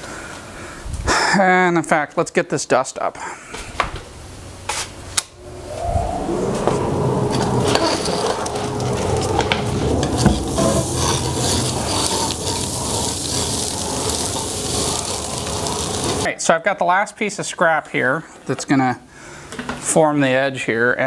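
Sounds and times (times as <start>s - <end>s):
dust collector humming: 5.4s - 16.3s
wood chips rattling up a hose: 10.5s - 16.3s.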